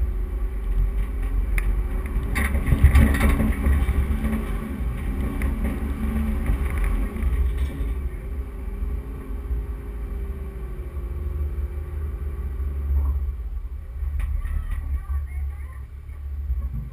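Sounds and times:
vehicle engine under load: 0.0s - 16.9s.

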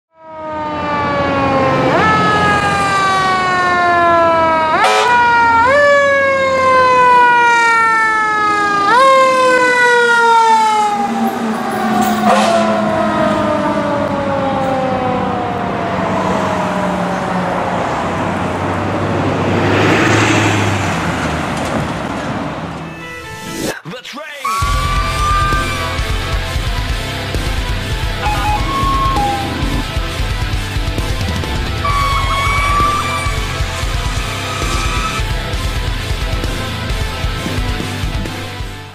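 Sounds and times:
fire engine siren wailing: 0.1s - 21.8s, 24.4s - 38.2s
truck engine running: 24.6s - 38.9s.

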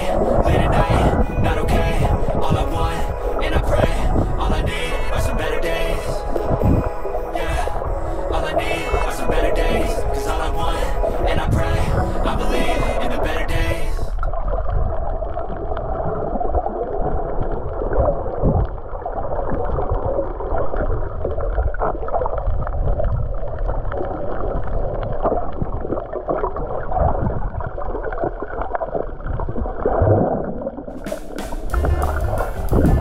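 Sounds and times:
underwater rumble and gurgling: 11.1s - 30.9s.

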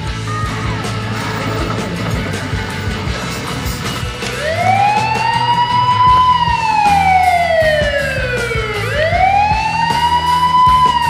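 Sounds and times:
background music: 0.0s - 11.0s
wailing siren: 4.3s - 11.0s.

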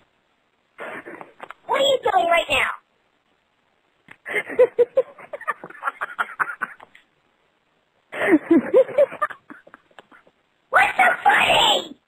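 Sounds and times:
person laughing over telephone: 4.3s - 6.9s, 8.2s - 10.4s.

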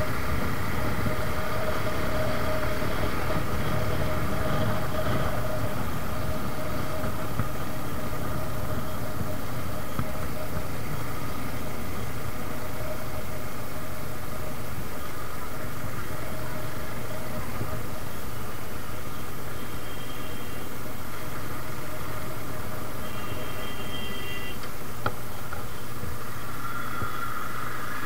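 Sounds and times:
wind rushing over microphone: 0.0s - 18.1s
motorcycle engine cruising: 0.0s - 24.2s.

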